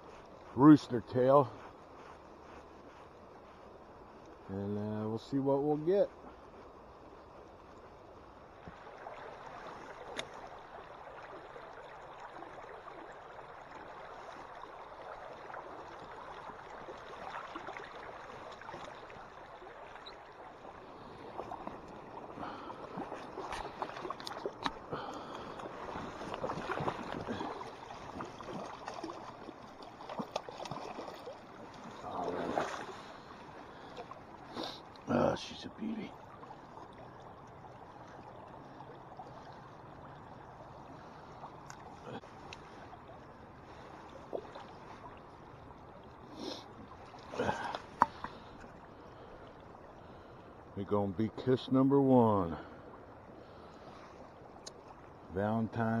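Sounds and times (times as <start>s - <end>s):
river water rushing: 8.6s - 49.3s.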